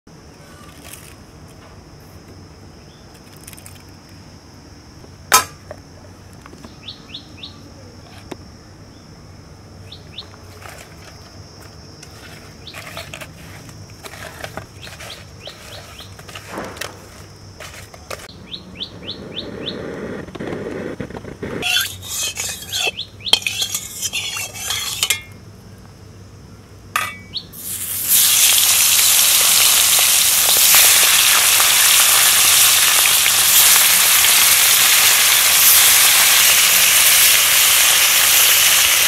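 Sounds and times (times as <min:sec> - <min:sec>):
birds chirping: 0:06.6 - 0:07.7, 0:14.7 - 0:16.3, 0:18.2 - 0:20.3, 0:21.4 - 0:24.8, 0:27.2 - 0:27.6
steady high hiss: 0:18.9 - 0:39.0
hands working fish on steel: 0:21.6 - 0:25.4.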